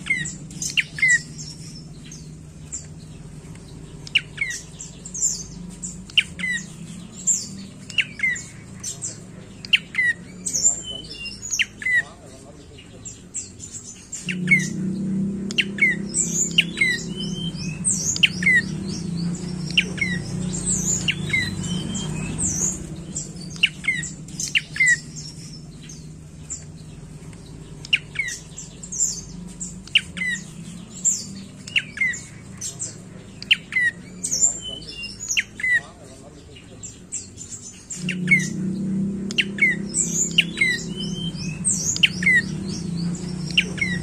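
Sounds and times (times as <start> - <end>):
bird chip notes: 12.8 - 44.0.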